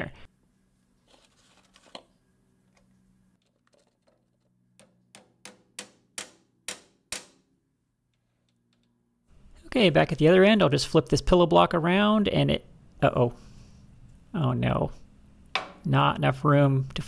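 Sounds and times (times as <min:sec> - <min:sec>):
hammer tapping metal pin: 0:04.8 - 0:07.4.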